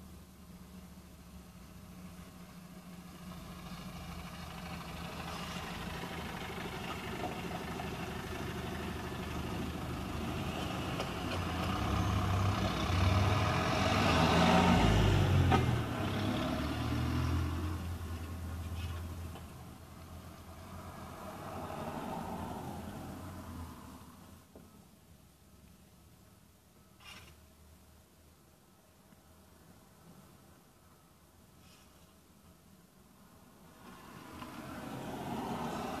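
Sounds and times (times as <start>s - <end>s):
road traffic passing: 0.0s - 36.0s
bus driving by: 0.5s - 24.4s, 33.8s - 36.0s.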